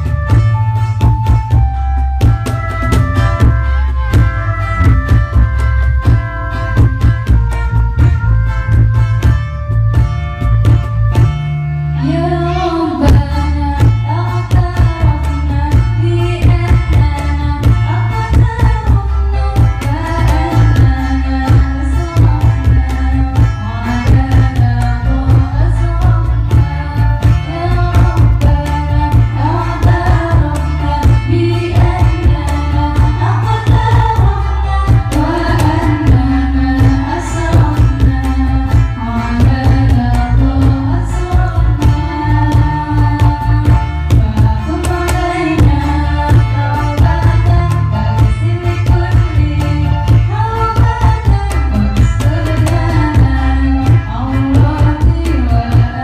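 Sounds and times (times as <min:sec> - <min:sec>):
hand drums: 0:00.0 - 0:11.5, 0:12.5 - 0:56.0
bass: 0:00.0 - 0:56.0
keyboard: 0:00.0 - 0:56.0
woman singing: 0:12.0 - 0:56.0.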